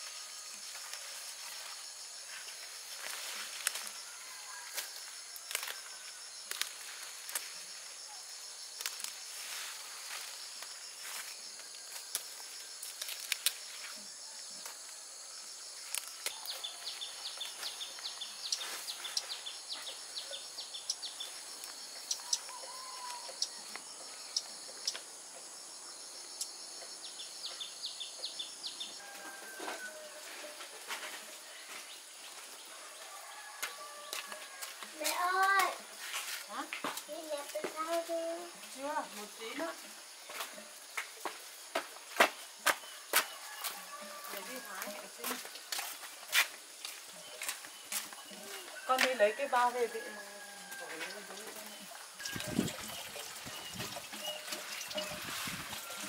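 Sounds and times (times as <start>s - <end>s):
insects buzzing: 0.0s - 56.0s
plants rustling and clicking: 2.4s - 7.9s, 8.6s - 14.9s, 15.8s - 20.0s, 33.5s - 56.0s
birds chirping: 15.8s - 25.5s.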